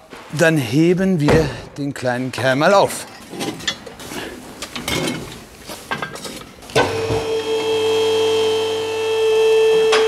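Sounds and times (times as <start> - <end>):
metal knocks and clatter: 3.2 - 6.6
car lift electric motor humming: 6.8 - 10.0.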